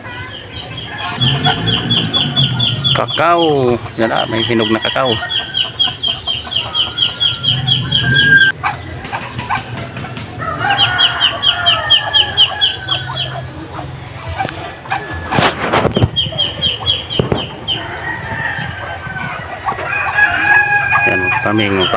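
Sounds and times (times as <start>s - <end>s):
chickens clucking: 0.0s - 21.9s
rapid high bird chirps: 0.2s - 13.5s.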